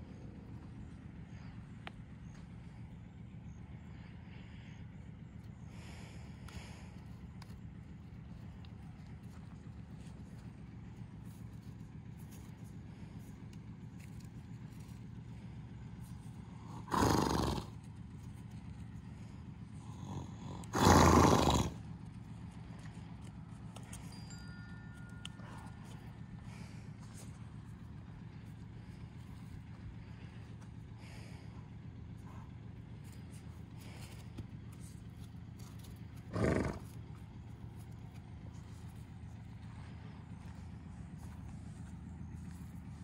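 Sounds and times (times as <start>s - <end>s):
horse snorting through nostrils: 16.6s - 17.8s, 19.9s - 21.8s, 36.2s - 37.0s.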